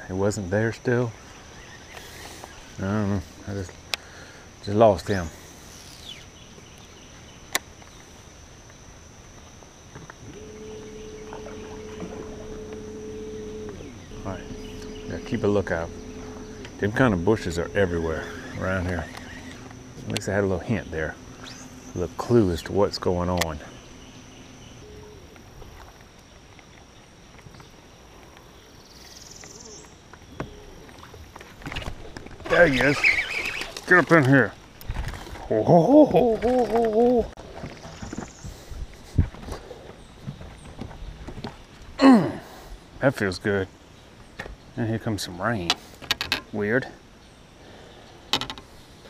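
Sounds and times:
high insect drone: 0.0 - 44.2
electric motor humming: 10.2 - 25.1.

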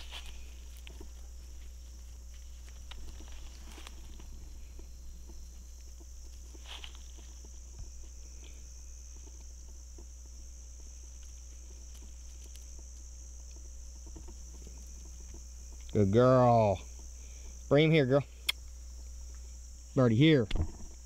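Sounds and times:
footsteps rustling in grass: 0.0 - 8.2
crickets droning: 0.0 - 21.0
low steady rumble: 0.0 - 21.0.

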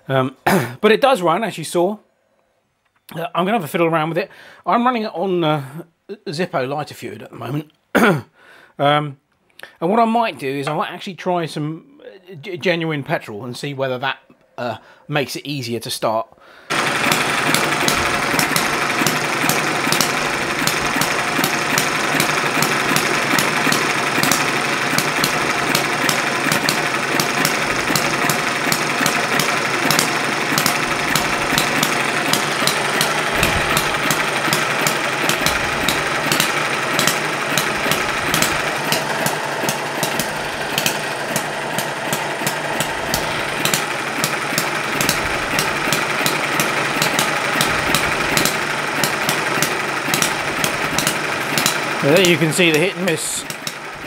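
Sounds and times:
model engine clattering: 16.7 - 54.0.

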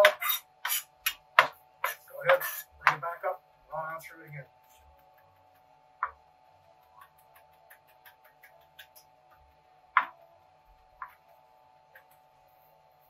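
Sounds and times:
knife chopping on cutting board: 0.0 - 3.0, 6.8 - 10.2
steady hum: 0.0 - 13.0.

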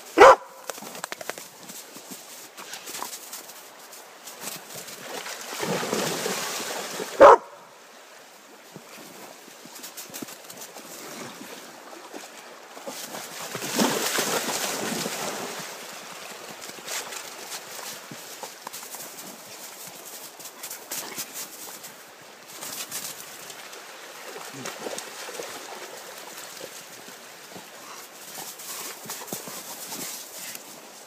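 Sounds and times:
dog barking: 0.2 - 0.6, 7.2 - 7.6
rustling noise: 28.2 - 31.0.

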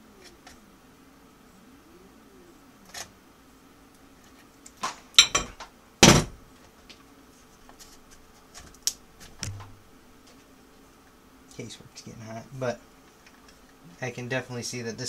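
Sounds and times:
faint steady hum: 0.0 - 15.0
metal tools clattering on metal: 5.2 - 5.6.

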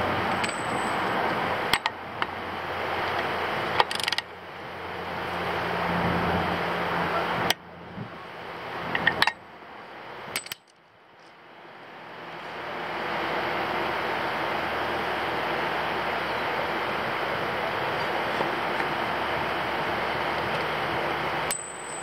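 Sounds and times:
metal tool clicks and clinks: 0.3 - 1.1, 10.3 - 10.8, 21.5 - 22.0
steady hiss: 11.4 - 22.0.

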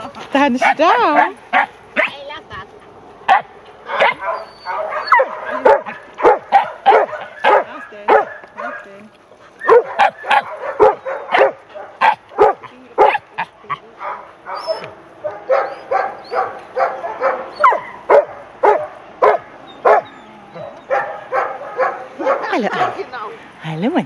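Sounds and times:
dogs barking: 0.5 - 2.2, 3.2 - 23.3
dog whining: 4.0 - 5.6, 14.5 - 14.9, 15.5 - 16.5, 17.2 - 18.0, 19.3 - 21.0.

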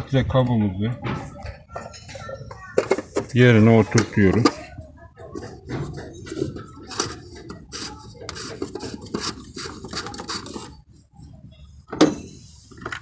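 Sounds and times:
plastic cap scraping and clicking: 5.4 - 10.8.

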